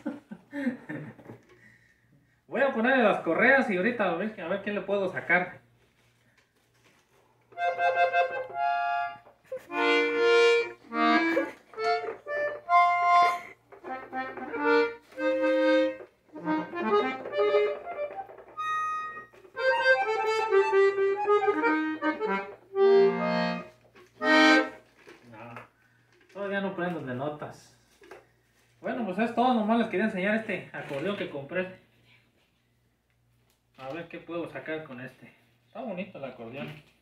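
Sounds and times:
accordion chords and notes: 7.5 - 24.8.

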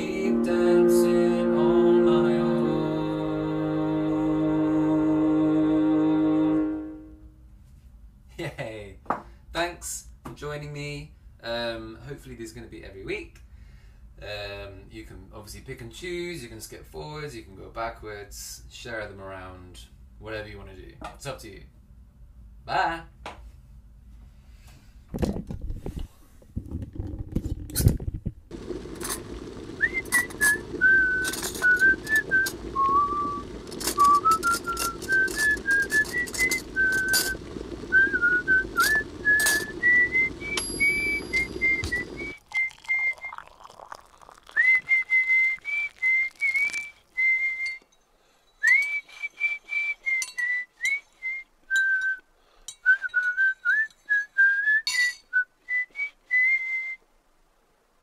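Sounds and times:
low rumbling noise: 26.4 - 43.3
person whistling a tune: 29.8 - 33.4, 34.0 - 43.6, 44.5 - 47.9, 48.6 - 57.0.

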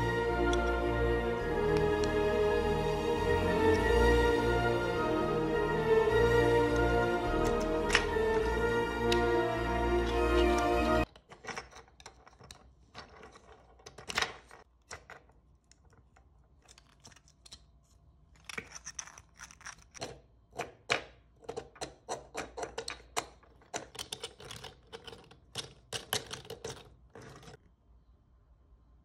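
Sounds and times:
plastic toy joints clicking: 18.4 - 27.6.

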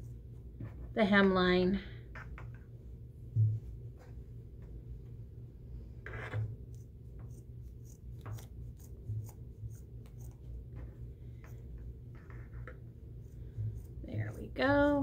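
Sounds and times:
scissors snipping fabric: 7.3 - 10.4.

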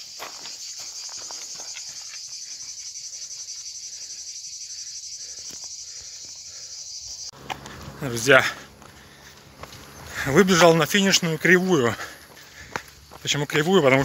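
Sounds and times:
footfalls on dirt path: 0.0 - 2.6, 7.4 - 14.0
insects chorus: 0.0 - 14.0.

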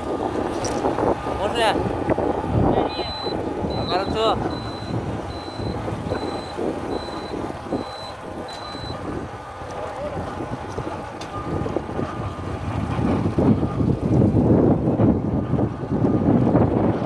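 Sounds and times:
motorcycle engine rumble: 0.0 - 17.0
wind buffeting microphone: 0.0 - 17.0
high electronic beep: 3.0 - 9.0.

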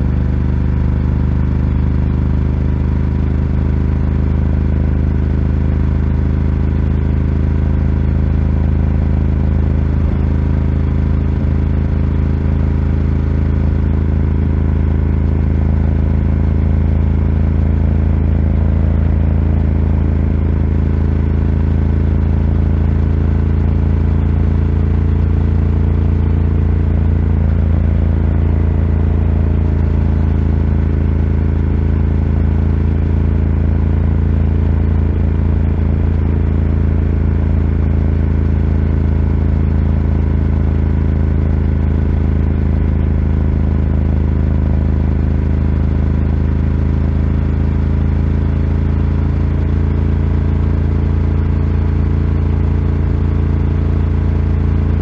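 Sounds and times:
motorcycle engine cruising: 6.2 - 44.1.

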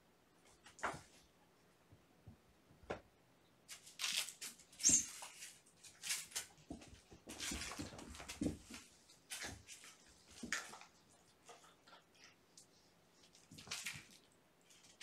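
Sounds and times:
kittens scuffling on carpet: 3.7 - 12.0.

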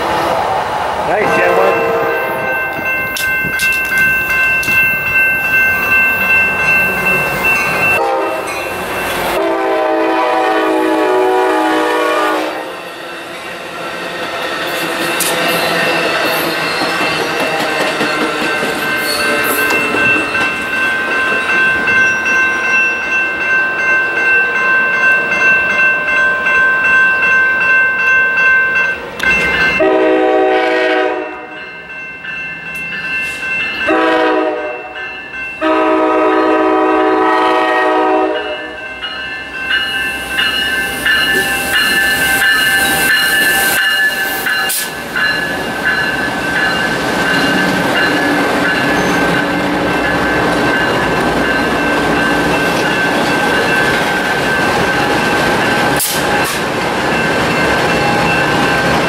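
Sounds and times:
train passing rush: 0.0 - 59.0
train running noise: 0.0 - 59.0
locomotive horn blasts: 1.2 - 2.6, 8.0 - 8.5, 9.4 - 12.8, 29.8 - 31.6, 33.9 - 35.0, 35.6 - 38.8
thin high steady tones: 38.9 - 55.9.

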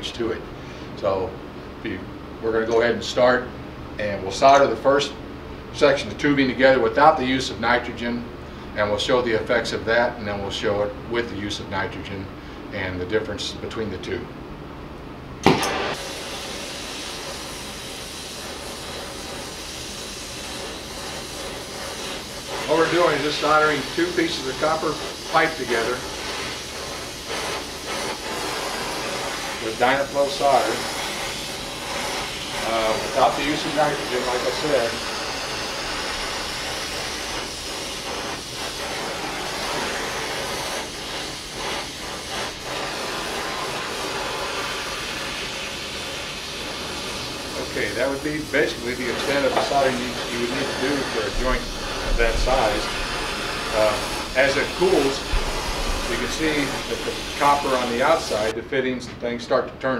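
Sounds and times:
torch flame hissing: 15.4 - 58.6.

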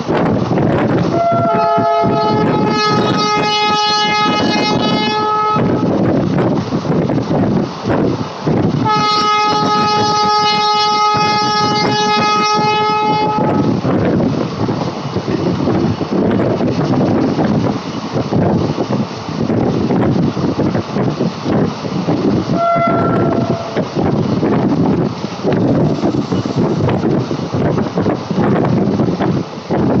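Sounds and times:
moving train rumble: 0.0 - 30.0
locomotive horn blasts: 1.1 - 5.9, 8.8 - 13.7, 22.5 - 23.8.

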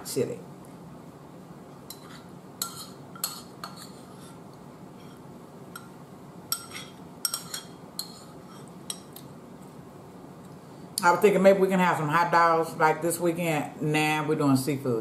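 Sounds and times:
metal spoon clinking against bowl: 6.5 - 8.2.

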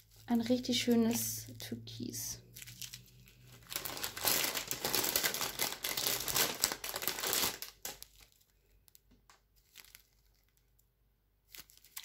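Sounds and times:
plastic bags crinkling: 0.0 - 1.4, 2.4 - 10.8, 11.5 - 12.0.

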